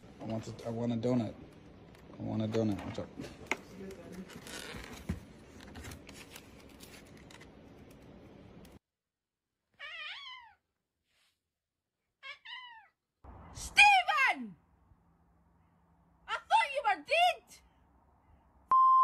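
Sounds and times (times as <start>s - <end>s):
cat meowing: 9.8s - 10.6s, 12.2s - 13.0s.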